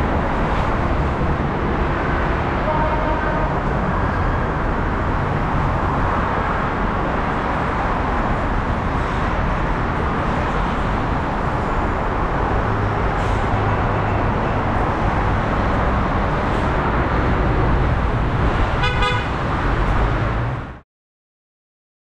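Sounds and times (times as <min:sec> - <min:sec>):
highway traffic roar: 0:00.0 - 0:20.8
vehicle horn toot: 0:18.8 - 0:19.4.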